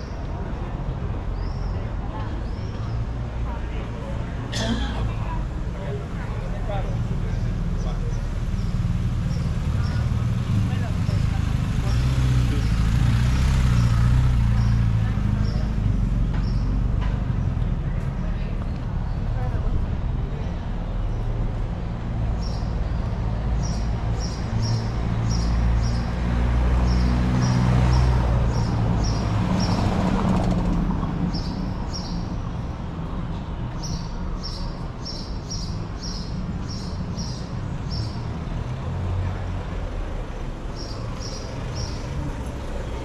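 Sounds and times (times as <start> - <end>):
low traffic rumble: 0.0 - 43.0
vehicle passing: 5.7 - 20.4.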